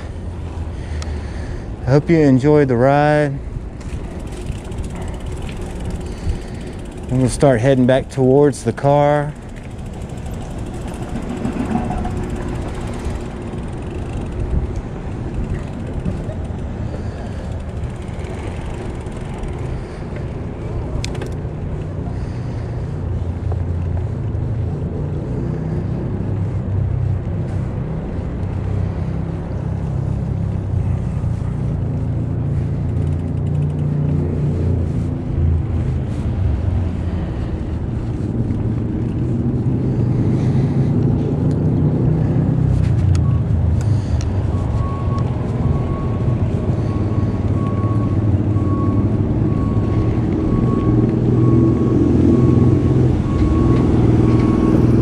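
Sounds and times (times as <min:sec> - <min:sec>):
bicycle tyre noise: 0:00.0 - 0:48.2
wind buffeting microphone: 0:09.0 - 0:21.1.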